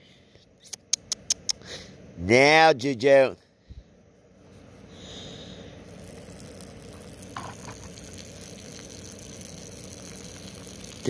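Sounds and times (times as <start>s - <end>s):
dog urinating: 6.1s - 11.0s.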